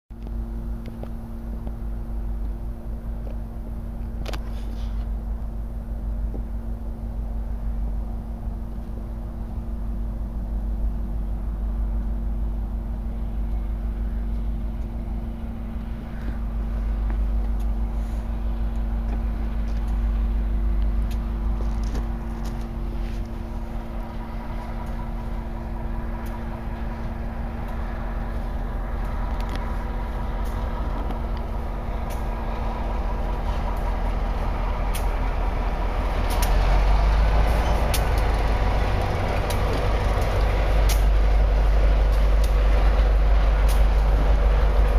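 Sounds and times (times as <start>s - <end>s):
low train rumble: 0.1s - 44.9s
faint engine tones: 0.2s - 44.9s
freight cars rattling: 13.7s - 44.9s.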